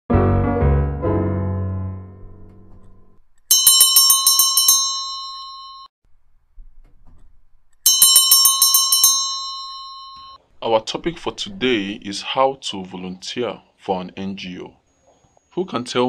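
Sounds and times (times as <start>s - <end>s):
soft piano music: 0.1s - 3.2s
school bell ringing: 3.5s - 5.9s, 7.8s - 10.4s.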